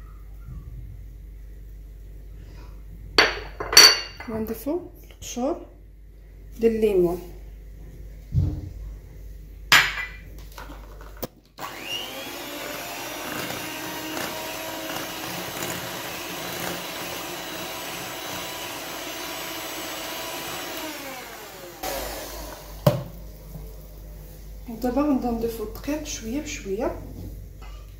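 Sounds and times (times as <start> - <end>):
electric hand mixer beating batter: 11.6 - 23.2.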